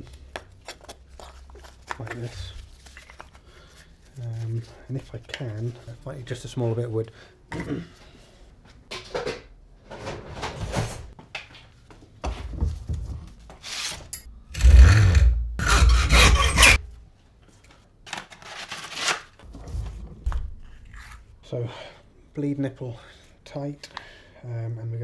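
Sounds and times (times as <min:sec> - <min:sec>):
hand saw cutting wood: 0:14.6 - 0:16.8.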